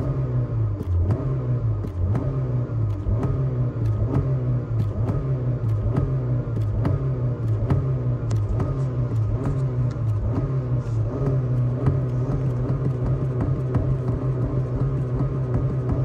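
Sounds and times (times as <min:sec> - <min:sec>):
car engine revving: 0:00.0 - 0:16.0
sharp clicks: 0:01.8 - 0:10.8.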